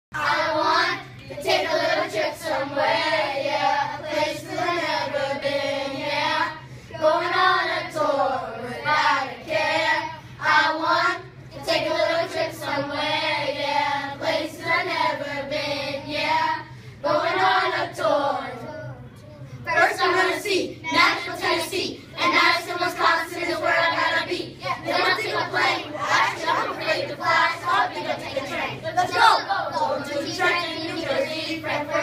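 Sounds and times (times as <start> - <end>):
children singing together: 19.7 - 32.0.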